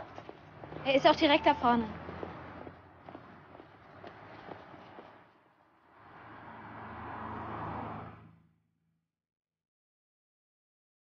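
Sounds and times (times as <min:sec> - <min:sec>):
city street hum: 0:00.0 - 0:08.7.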